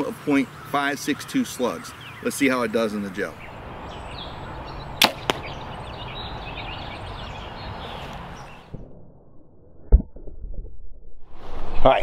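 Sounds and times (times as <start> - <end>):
outdoor background: 0.0 - 12.0
bow shot and arrow impact cracks: 5.0 - 5.5.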